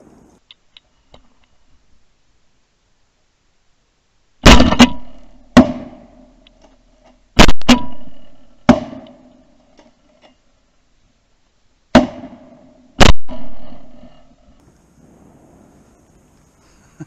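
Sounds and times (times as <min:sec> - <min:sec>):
shotgun shots echoing: 0:04.4 - 0:06.4, 0:07.4 - 0:09.5, 0:11.9 - 0:14.4.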